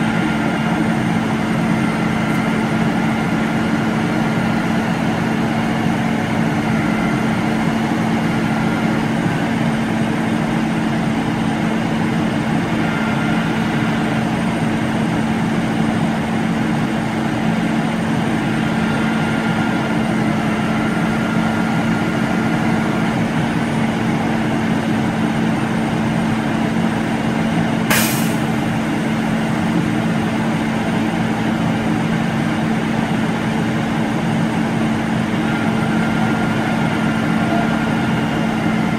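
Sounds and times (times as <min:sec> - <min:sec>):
truck engine droning: 0:00.0 - 0:38.9
sharp hiss of air: 0:27.9 - 0:28.5.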